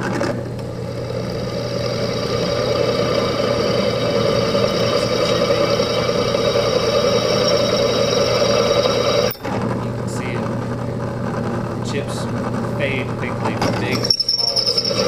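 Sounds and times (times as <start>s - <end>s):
drill press motor hum: 0.0s - 9.9s, 13.9s - 15.0s
high-pitched cutting tone: 1.0s - 9.4s, 14.0s - 15.0s.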